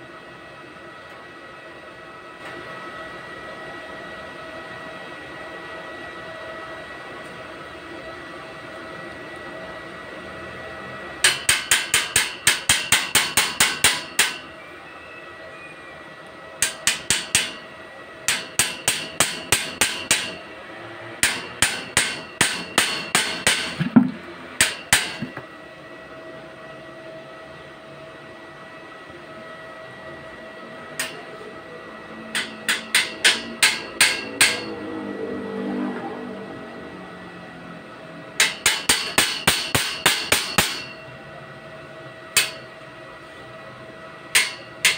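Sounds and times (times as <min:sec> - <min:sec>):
hammer tapping on steel tube: 0:11.2 - 0:14.4, 0:16.6 - 0:17.6, 0:18.3 - 0:20.4, 0:21.2 - 0:23.8, 0:32.3 - 0:34.7, 0:38.4 - 0:41.0, 0:42.4 - 0:42.7, 0:44.3 - 0:44.9.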